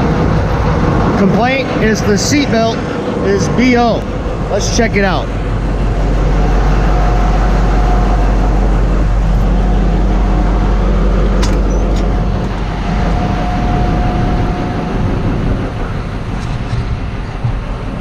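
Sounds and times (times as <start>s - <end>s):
diesel engine rumbling: 0.0s - 18.0s
faint steady whine: 0.0s - 18.0s.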